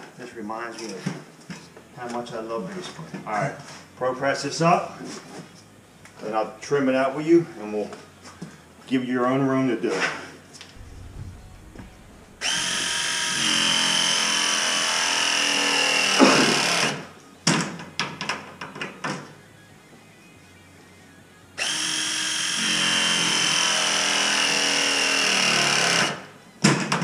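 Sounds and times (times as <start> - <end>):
press tool motor whining: 12.4 - 17.0.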